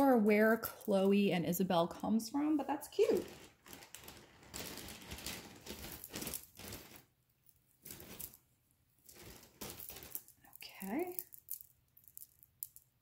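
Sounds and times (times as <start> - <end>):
packaging rustling: 3.0 - 7.2, 7.8 - 8.4, 9.1 - 11.6.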